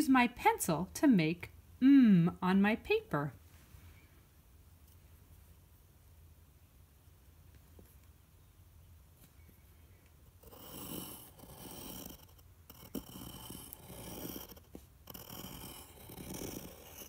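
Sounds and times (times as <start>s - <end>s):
pencil scratching on paper: 10.4s - 17.0s.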